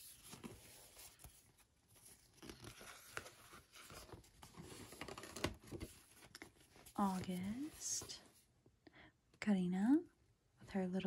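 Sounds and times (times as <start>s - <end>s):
paper pages rustling and scraping: 0.0s - 8.3s.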